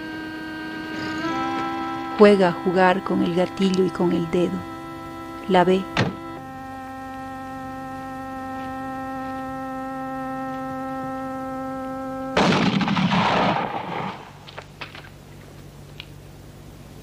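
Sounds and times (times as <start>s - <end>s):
steady held tone: 0.0s - 14.5s
rifle shot: 12.4s - 14.4s.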